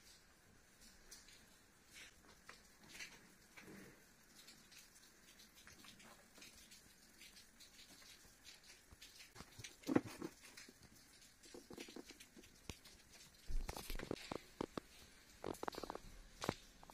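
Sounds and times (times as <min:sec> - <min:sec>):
rustling: 0:08.6 - 0:16.9
handling taps scrapes and clicks: 0:09.3 - 0:14.9.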